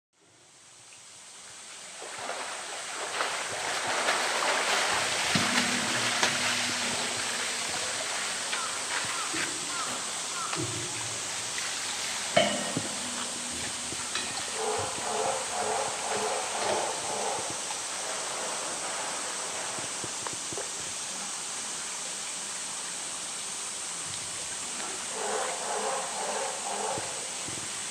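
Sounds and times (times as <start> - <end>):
outdoor background hiss: 0.2 - 27.9
water splashing and sloshing: 1.2 - 27.9
low steady hum: 5.1 - 19.1.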